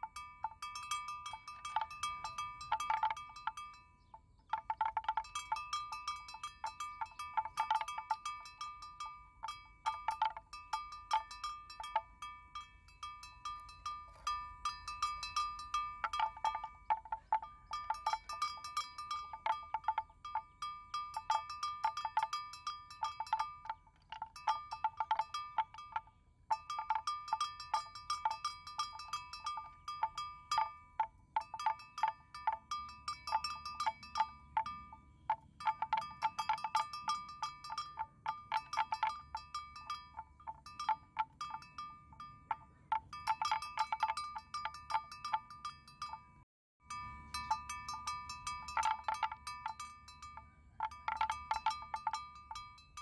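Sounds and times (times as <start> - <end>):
metal animal bell clanking: 0.0 - 53.0.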